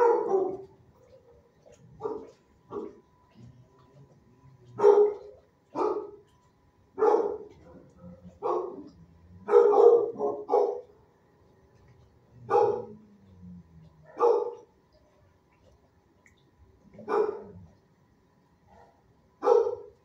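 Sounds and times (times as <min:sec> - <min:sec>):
dog barking: 0:00.0 - 0:03.0, 0:04.8 - 0:06.2, 0:07.0 - 0:10.9, 0:12.4 - 0:13.0, 0:14.0 - 0:14.7, 0:17.0 - 0:17.6, 0:18.7 - 0:20.0.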